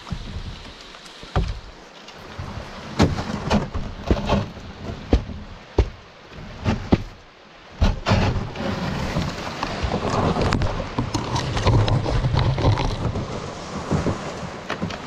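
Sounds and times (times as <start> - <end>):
river water splashing: 0.0 - 15.0
knocks against canoe hull: 1.2 - 1.7, 2.4 - 7.2, 7.8 - 10.1.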